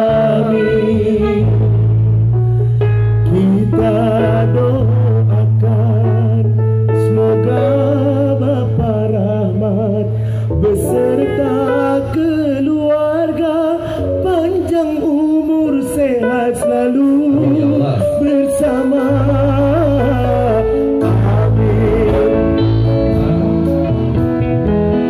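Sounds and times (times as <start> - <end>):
person singing ornamented vocals: 0.0 - 1.6
amplified band with bass: 0.0 - 25.0.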